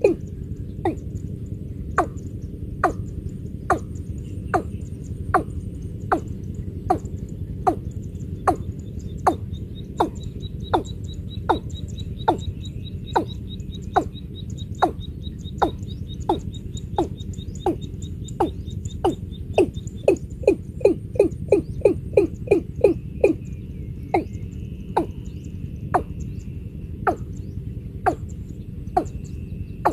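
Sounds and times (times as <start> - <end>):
bird calling falling notes: 0.0 - 1.2, 8.5 - 23.4, 25.0 - 25.3, 25.9 - 26.2, 28.9 - 29.2.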